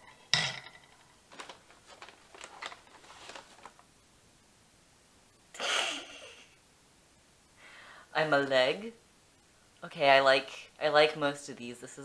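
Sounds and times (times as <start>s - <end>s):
paper bag rustling: 0.9s - 3.9s
person snorting breath: 5.6s - 6.6s.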